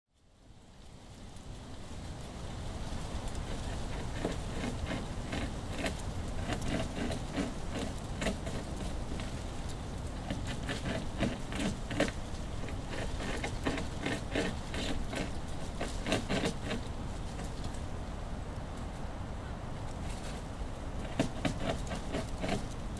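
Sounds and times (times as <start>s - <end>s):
beaver chewing: 3.4s - 17.9s, 20.0s - 22.9s.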